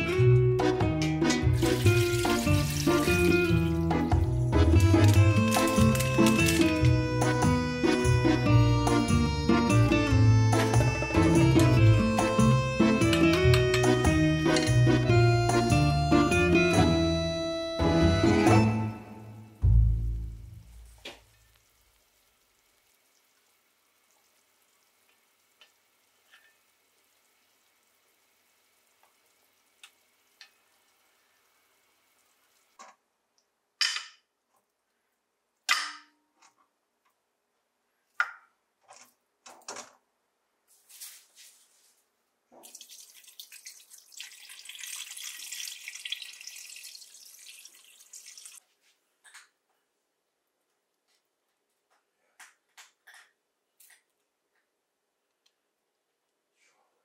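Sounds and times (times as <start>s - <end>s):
water pouring into pot: 1.5s - 4.0s, 4.6s - 6.8s, 21.3s - 32.7s, 42.6s - 48.6s.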